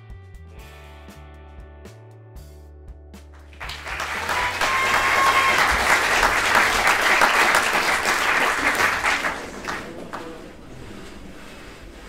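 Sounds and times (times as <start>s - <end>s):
audience applauding: 3.4s - 10.6s.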